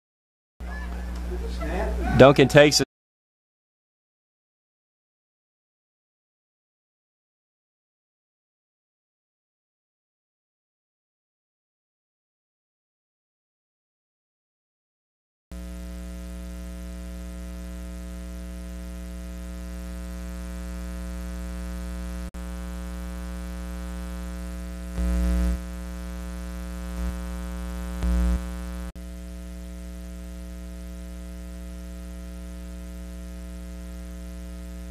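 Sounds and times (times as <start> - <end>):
electrical hum and buzz: 15.6 - 34.9.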